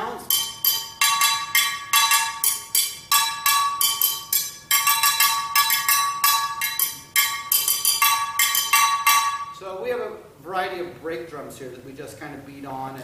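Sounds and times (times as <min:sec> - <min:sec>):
brake drums struck with sticks: 0:00.3 - 0:09.6.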